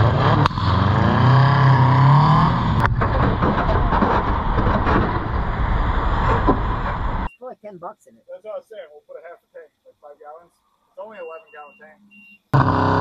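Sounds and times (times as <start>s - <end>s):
car engine revving high: 0.0s - 7.3s, 12.6s - 13.0s.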